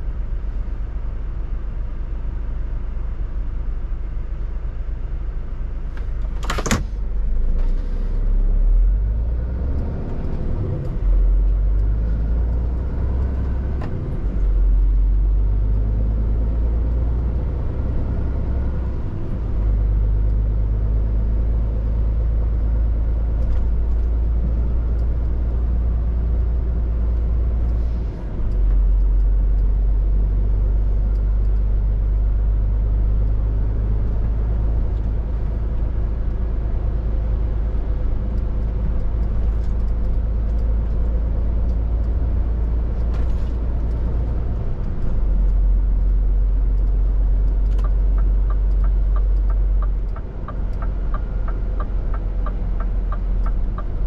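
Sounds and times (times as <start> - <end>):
lorry diesel engine drone: 0.0 - 54.0
road noise: 0.0 - 54.0.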